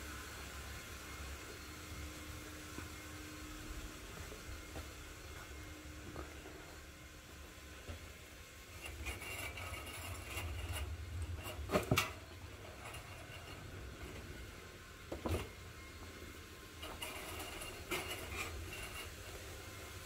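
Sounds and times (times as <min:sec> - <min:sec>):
trolley wheels rumbling: 0:08.6 - 0:20.0.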